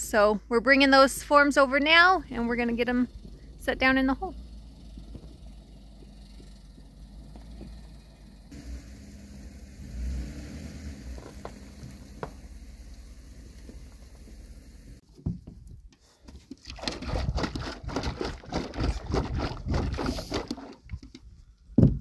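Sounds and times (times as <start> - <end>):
low steady rumble: 0.2 - 15.0
liquid glugging and splattering: 16.5 - 20.8.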